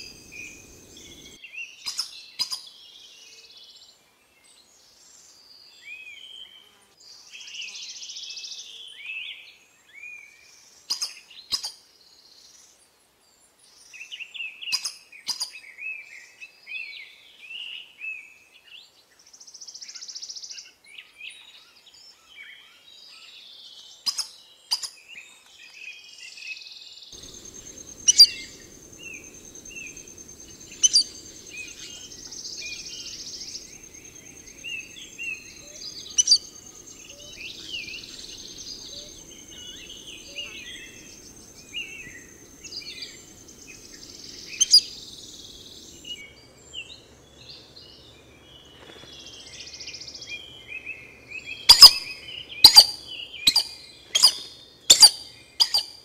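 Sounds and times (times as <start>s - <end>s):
high insect whine: 0.0s - 1.4s, 27.2s - 46.2s
birds chirping and calling: 0.0s - 2.6s, 27.2s - 47.0s, 49.2s - 56.0s.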